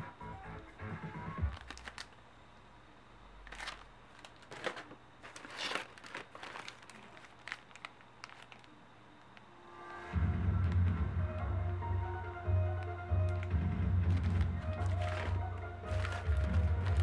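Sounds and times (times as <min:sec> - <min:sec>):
plastic packing crinkling: 0:01.4 - 0:02.2, 0:03.4 - 0:08.8, 0:12.6 - 0:17.0.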